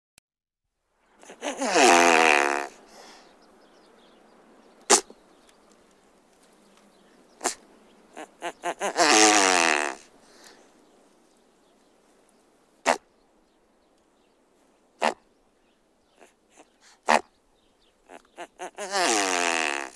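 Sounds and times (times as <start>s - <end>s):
great bustard low raspy calls: 1.2s - 3.3s, 4.9s - 5.2s, 7.4s - 10.4s, 12.8s - 13.1s, 15.0s - 15.3s, 16.1s - 17.4s, 18.0s - 19.9s.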